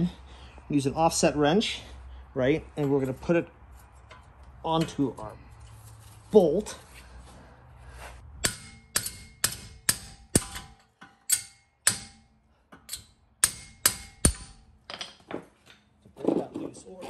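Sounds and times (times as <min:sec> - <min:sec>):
metal-on-metal blows with ringing: 0:08.4 - 0:14.8.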